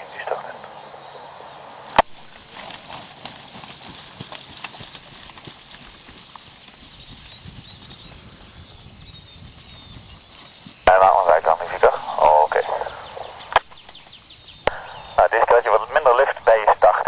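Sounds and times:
faint steady hiss: 0.0s - 2.6s, 10.9s - 17.0s.

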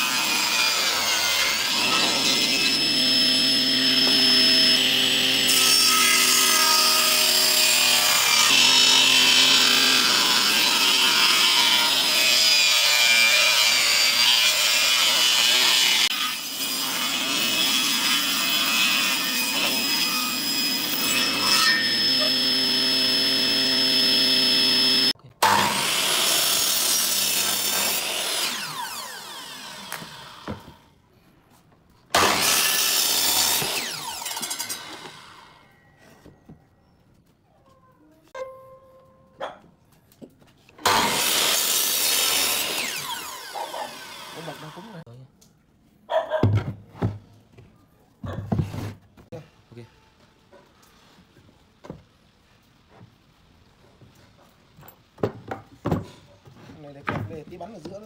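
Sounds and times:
saw blade winding down: 0.0s - 12.3s, 19.0s - 30.5s, 32.2s - 35.6s, 40.8s - 45.0s
saw blade cutting wood: 0.0s - 30.7s, 32.1s - 35.5s, 40.8s - 45.0s
table saw motor hum: 0.2s - 12.2s, 19.2s - 30.5s.

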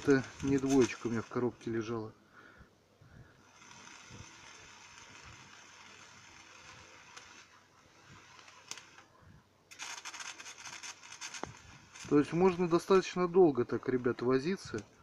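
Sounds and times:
welding arc hissing and crackling: 0.0s - 2.0s, 3.4s - 9.0s.

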